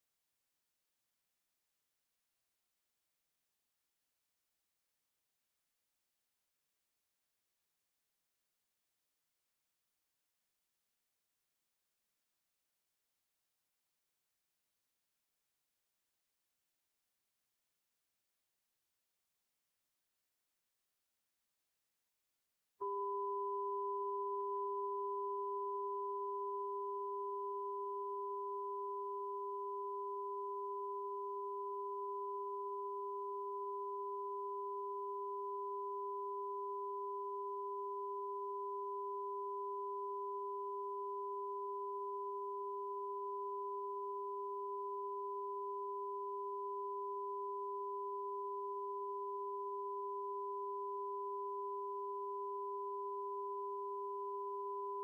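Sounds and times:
two-tone test signal: 22.8 - 36.6.

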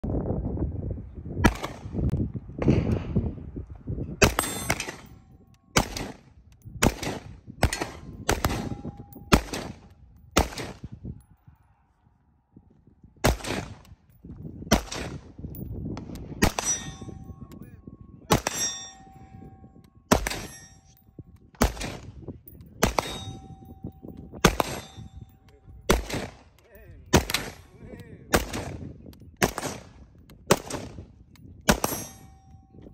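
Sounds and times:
rifle shots: 4.2 - 5.2, 5.8 - 6.2, 6.8 - 10.8, 13.2 - 13.8, 14.7 - 15.3, 18.3 - 18.9, 20.1 - 20.7, 21.6 - 22.2, 22.8 - 25.2, 25.9 - 26.5, 27.1 - 28.8, 29.4 - 31.0, 31.7 - 32.2
steel target ringing: 4.2 - 5.4, 16.4 - 21.1, 22.8 - 25.5, 31.8 - 32.8.

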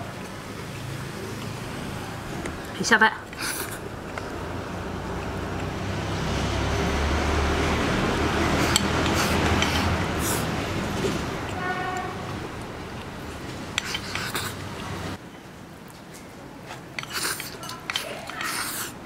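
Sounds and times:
chopsticks clicking on bowl: 17.0 - 18.7.

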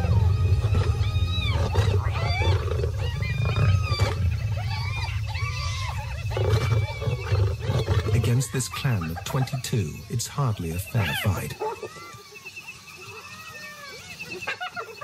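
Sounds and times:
hyenas yelping and whooping: 0.0 - 10.1, 10.7 - 15.0
lions growling and snarling: 0.0 - 10.1
deep continuous rumble: 0.0 - 10.2.

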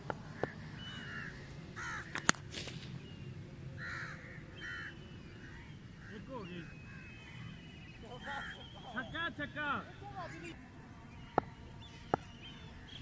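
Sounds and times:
crows cawing: 0.3 - 2.4, 3.8 - 10.6.

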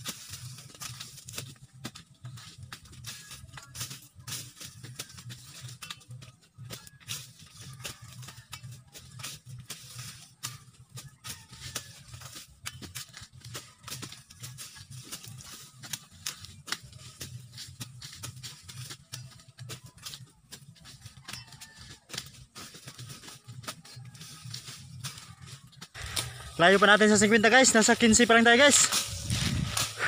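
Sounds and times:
dry leaves rustling: 0.0 - 30.0
low hum: 28.8 - 30.0.

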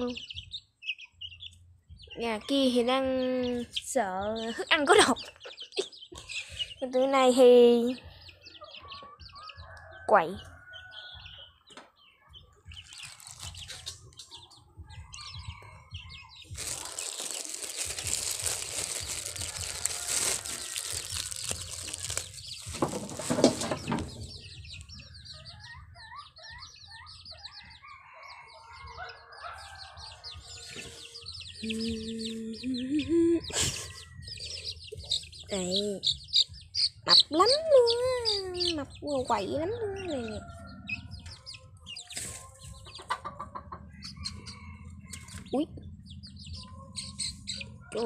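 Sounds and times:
chicks peeping and clucking: 0.0 - 48.0
loud rustling: 16.5 - 24.2.

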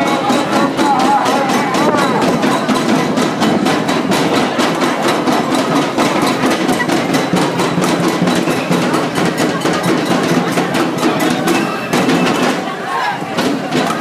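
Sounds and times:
sharp percussive hits: 0.0 - 14.0
street crowd: 0.0 - 14.0.

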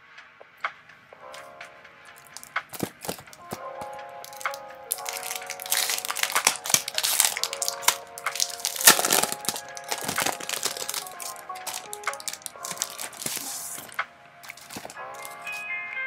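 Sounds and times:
soft background music: 0.0 - 16.0
plastic packaging crinkling: 2.2 - 3.6, 4.2 - 15.6.

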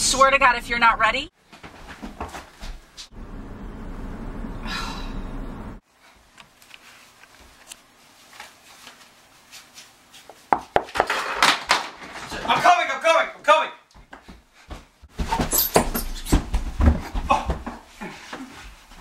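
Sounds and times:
car road and engine rumble: 3.1 - 5.8
rustling of handled objects: 5.9 - 12.4
clattering knocks on desk: 10.6 - 12.0.

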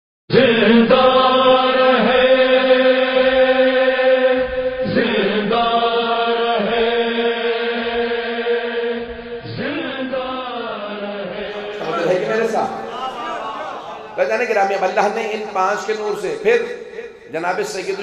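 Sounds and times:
chanting in long notes: 11.3 - 17.8.

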